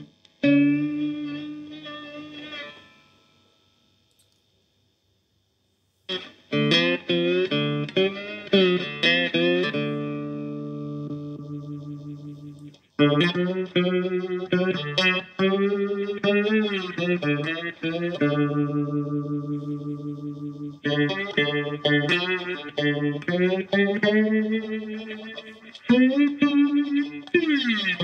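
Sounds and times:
slide guitar blues riff: 0.0s - 3.1s, 6.1s - 28.0s.

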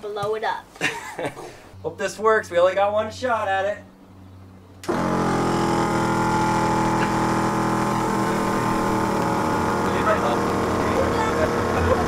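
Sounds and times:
air compressor running: 4.8s - 12.0s.

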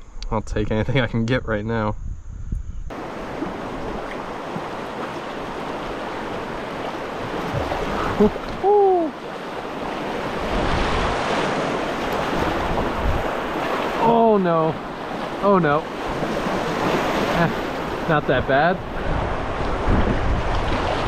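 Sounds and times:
river current rushing: 2.9s - 21.0s
short rising and falling call: 7.8s - 9.2s.

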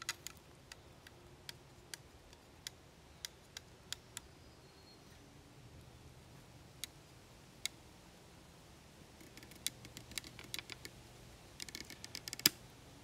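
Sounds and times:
wooden parts clicking together: 0.0s - 4.0s, 9.2s - 11.0s, 11.6s - 12.6s.

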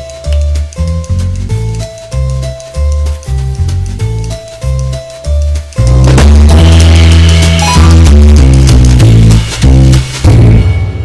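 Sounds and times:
heavy bass notes: 3.4s - 10.8s
drum hits: 5.8s - 11.0s.

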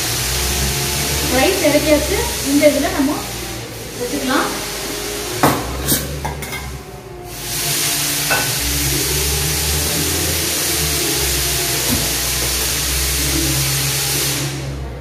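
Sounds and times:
food sizzling in a frying pan: 7.3s - 14.4s.

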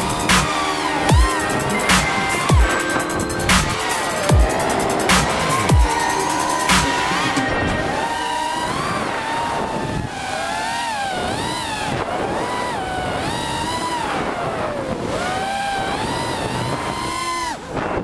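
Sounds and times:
drone motors whining: 0.0s - 18.0s
wind rushing on microphone: 6.6s - 18.0s.

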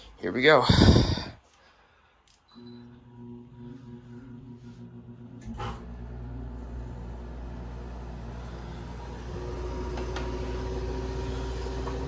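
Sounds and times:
air conditioner humming: 2.6s - 12.0s.

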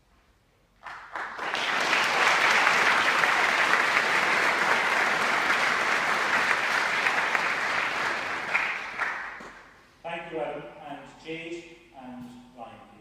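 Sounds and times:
congregation applauding: 0.8s - 9.8s.

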